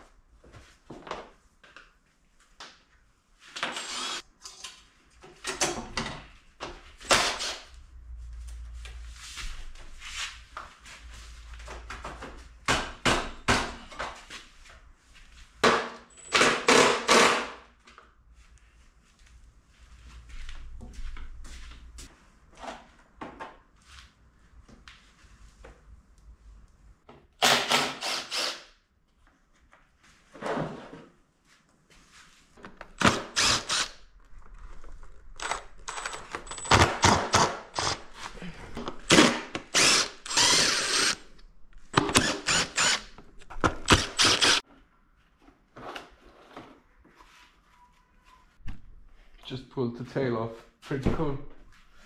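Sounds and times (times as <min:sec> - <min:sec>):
cordless power driver spinning bolts: 0:33.0 - 0:34.0, 0:39.1 - 0:41.2, 0:41.9 - 0:44.6.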